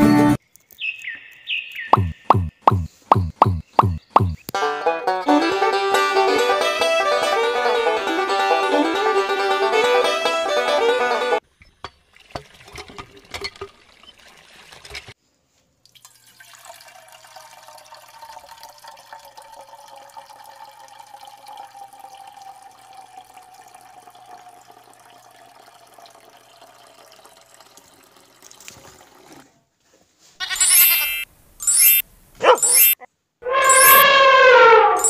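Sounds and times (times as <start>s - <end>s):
water trickling into pond: 0.4s - 4.6s, 11.4s - 15.2s, 15.8s - 29.6s
water gushing from hand pump: 11.7s - 15.2s, 15.9s - 29.5s.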